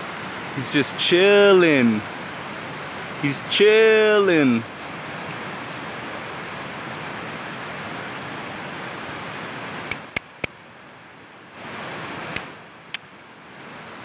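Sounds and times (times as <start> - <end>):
sharp clicks: 9.9 - 10.6.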